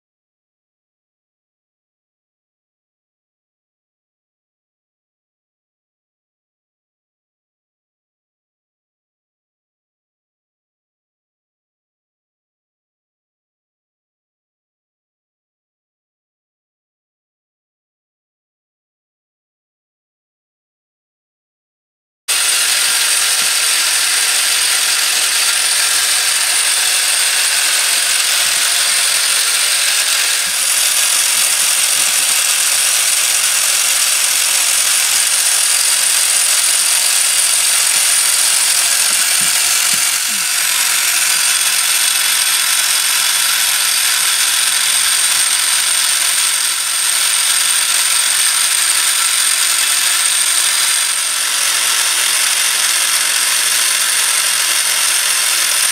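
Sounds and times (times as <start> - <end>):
clattering whir of small gears: 22.3 - 55.9.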